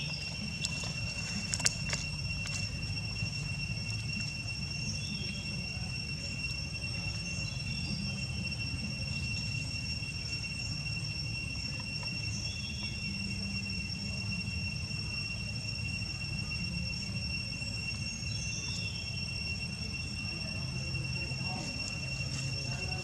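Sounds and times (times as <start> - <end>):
faint chirps: 0.0 - 23.0
insects droning: 0.0 - 23.0
low background rumble: 0.0 - 23.0.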